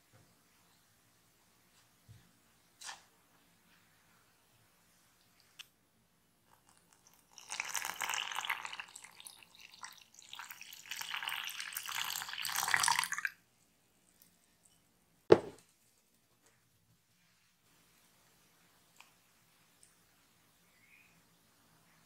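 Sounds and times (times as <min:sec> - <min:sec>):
water pouring into flour: 0:06.5 - 0:13.4.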